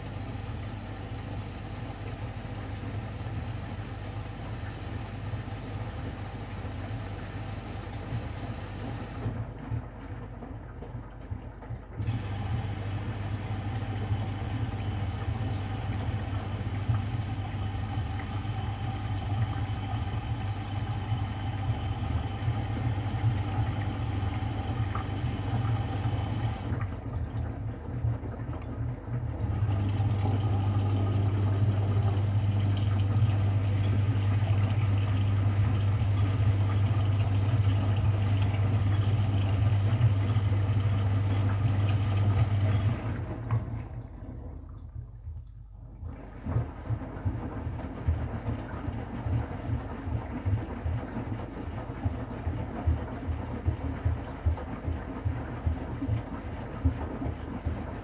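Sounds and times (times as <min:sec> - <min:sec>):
washing machine motor hum: 0:00.0 - 0:58.0
water sloshing in washing machine: 0:00.0 - 0:58.0.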